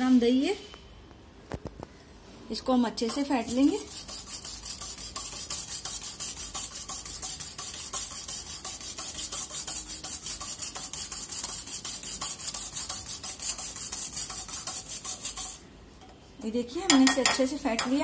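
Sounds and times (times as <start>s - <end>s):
whisk beating in glass bowl: 3.1s - 15.6s.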